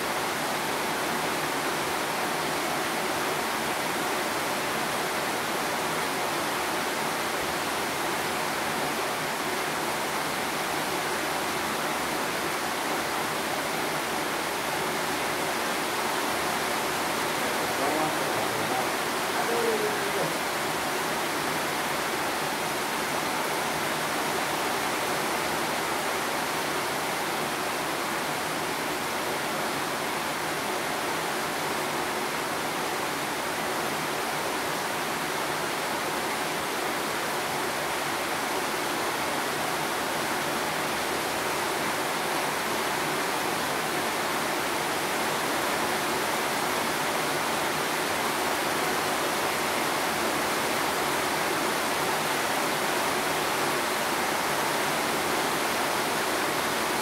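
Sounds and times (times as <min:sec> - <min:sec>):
rain falling steadily: 0:00.0 - 0:57.0.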